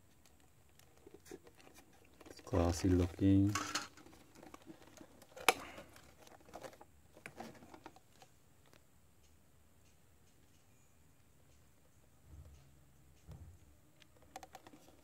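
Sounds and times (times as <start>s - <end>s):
plastic handling clicks and rustles: 0.1s - 10.7s, 14.0s - 15.0s.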